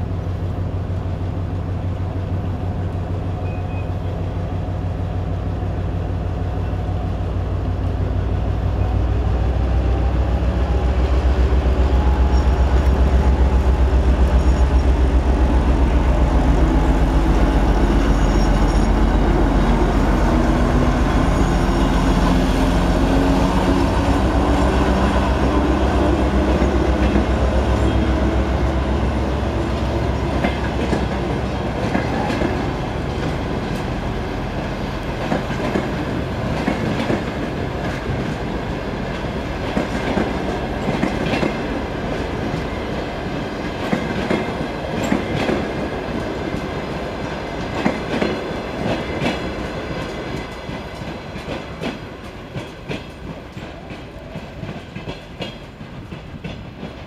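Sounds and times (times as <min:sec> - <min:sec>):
locomotive diesel engine drone: 0:05.4 - 0:35.1
train wheels clickety-clack: 0:07.7 - 0:57.0.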